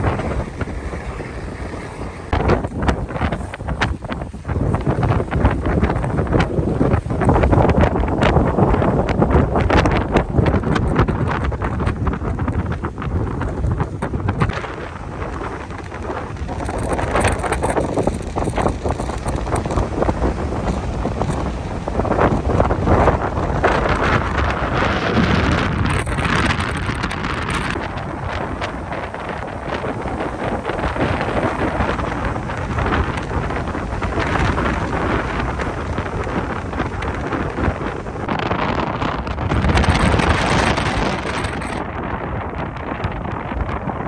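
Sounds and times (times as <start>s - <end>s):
gusty wind buffeting microphone: 0.0s - 44.0s
rough surf: 0.0s - 44.0s.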